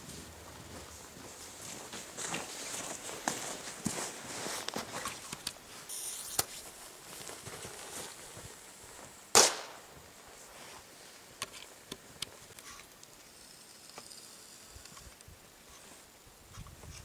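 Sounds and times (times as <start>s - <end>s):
firecracker bang: 9.3s - 9.8s.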